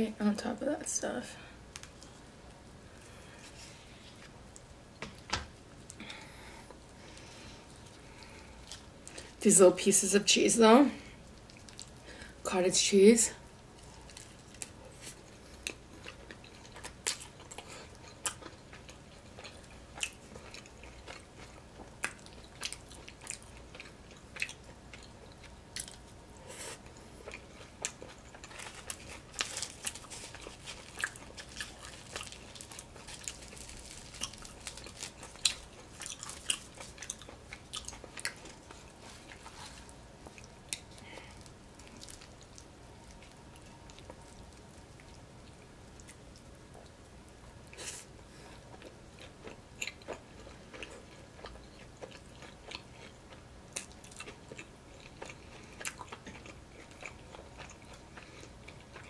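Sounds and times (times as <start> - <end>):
person chewing with mouth clicks: 26.8 - 44.2, 48.7 - 59.0
bread tearing: 28.5 - 37.1.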